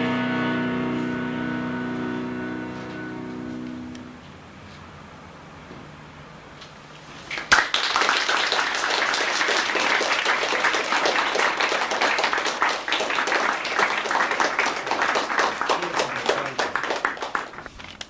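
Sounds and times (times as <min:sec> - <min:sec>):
audience applauding: 0:07.3 - 0:17.8.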